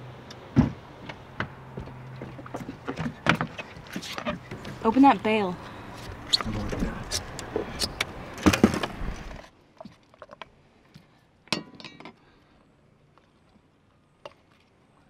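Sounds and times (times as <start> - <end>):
handling noise and knocks: 0.4 - 5.1.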